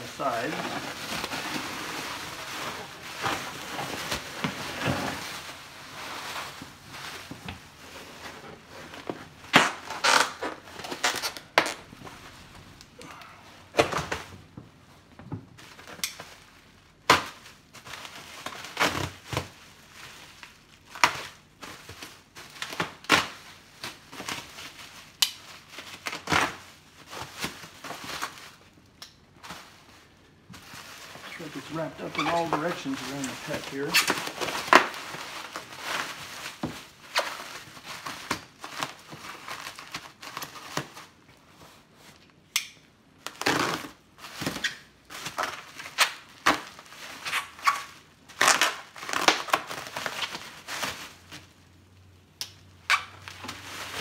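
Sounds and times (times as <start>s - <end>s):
bubble wrap crumpling and crackling: 0.0s - 14.6s, 15.5s - 54.0s.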